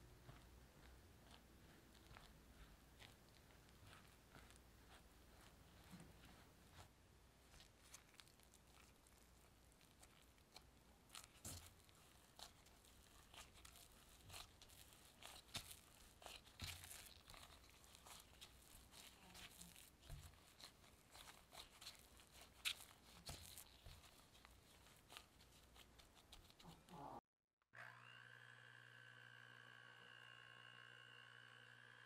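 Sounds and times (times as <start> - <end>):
gloved hand kneading dough: 0.0 - 27.2
small crackles and taps: 7.5 - 26.8.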